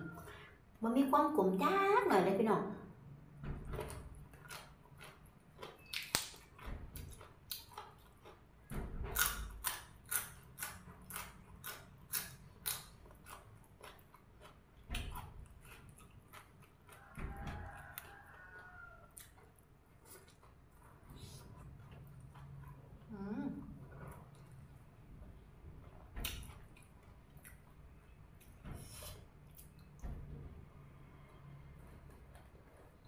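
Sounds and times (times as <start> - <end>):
chewing crisp vegetables: 3.8 - 30.0, 31.4 - 33.0
distant rooster crowing: 16.9 - 19.2.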